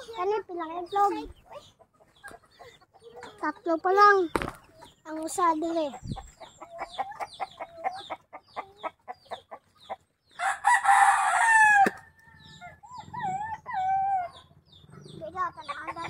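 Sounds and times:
chickens clucking: 0.0 - 16.0
rooster crowing: 10.4 - 12.7.

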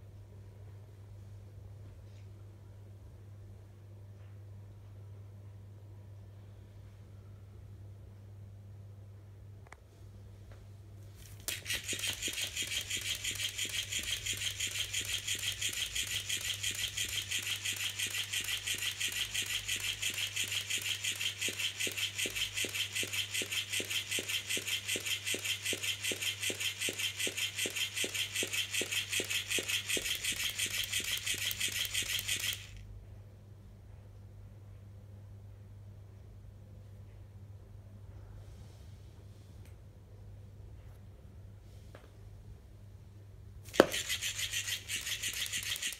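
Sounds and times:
toy motor whirring: 11.2 - 32.8, 43.7 - 45.9
toy tail flapping: 11.2 - 32.8, 43.7 - 45.9.

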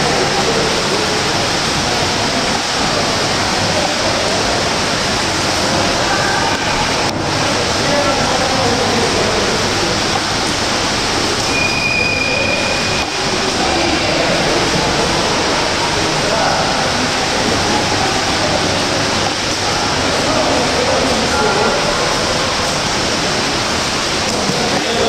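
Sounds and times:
faint voices: 0.0 - 25.0
swimmers splashing: 0.0 - 25.0
short high tone: 11.5 - 13.2.

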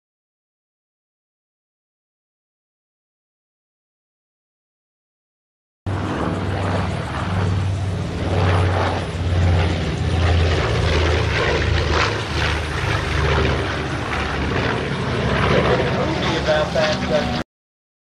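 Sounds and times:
propeller aircraft droning overhead: 5.9 - 17.4.

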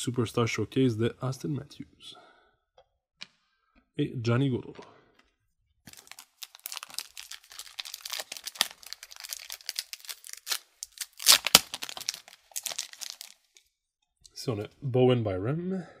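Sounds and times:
wrapper crinkling and tearing: 5.9 - 13.6.

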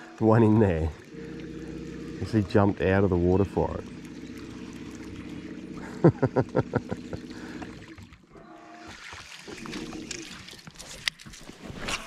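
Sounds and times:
fishing reel whirring: 0.0 - 8.9.

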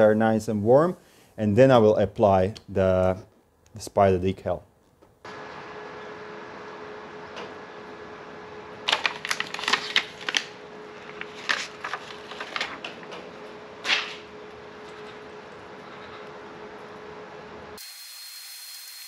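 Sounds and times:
faint hum: 0.0 - 17.8
plastic film crackling as peeled: 8.9 - 13.0.

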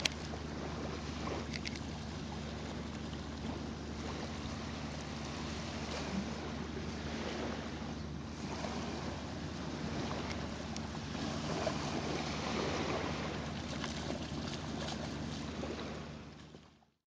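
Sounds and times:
small waves washing on sand: 0.0 - 16.6.

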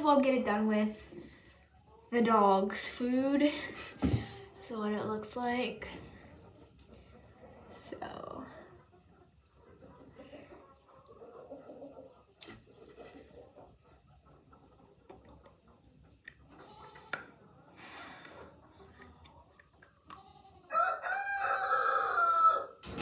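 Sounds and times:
faint small sounds: 5.9 - 20.7
rooster crowing: 20.7 - 22.8.

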